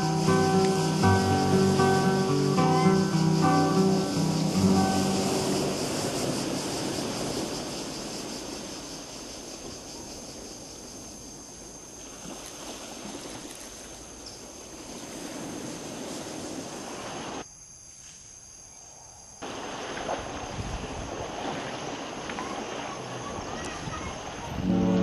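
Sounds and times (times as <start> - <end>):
wind on microphone: 4.4 - 8.7, 20.3 - 21.6, 23.2 - 25.0
thin high tone: 24.5 - 25.0.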